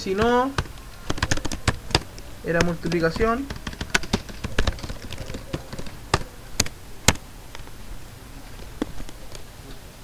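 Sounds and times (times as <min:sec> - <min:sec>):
keyboard and mouse clicks: 0:00.0 - 0:07.2.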